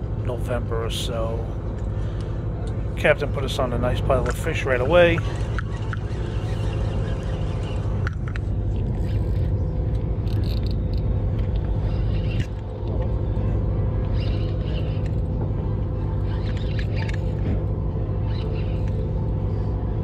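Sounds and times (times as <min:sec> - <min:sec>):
boat engine droning: 0:00.0 - 0:20.0
spinning reel ticking: 0:05.1 - 0:08.2.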